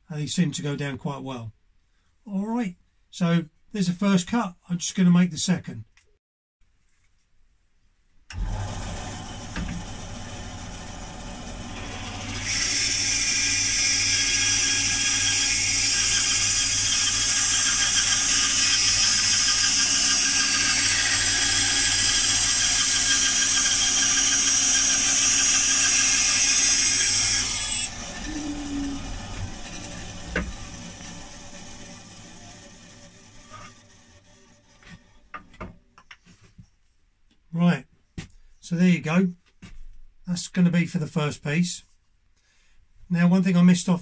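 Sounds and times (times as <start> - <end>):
bandsaw humming: 8.3 - 35.7
saw blade cutting wood: 8.3 - 35.7.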